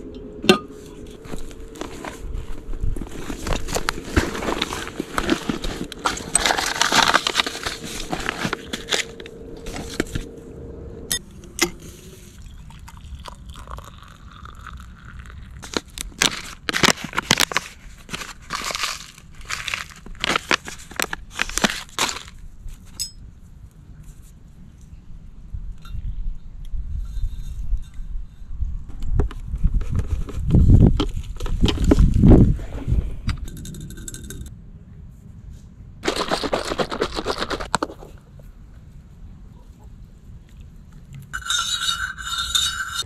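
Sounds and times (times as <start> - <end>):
crunching and crackling: 1.0 - 10.3, 12.4 - 22.4.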